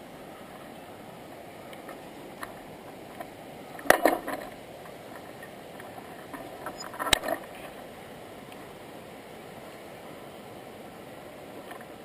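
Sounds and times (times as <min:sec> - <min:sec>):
steady rushing noise: 0:00.0 - 0:12.0
sharp clicks and knocks: 0:01.7 - 0:07.4.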